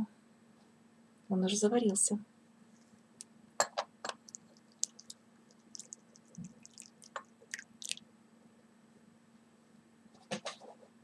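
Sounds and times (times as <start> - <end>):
tea trickling into a cup: 4.1 - 8.0.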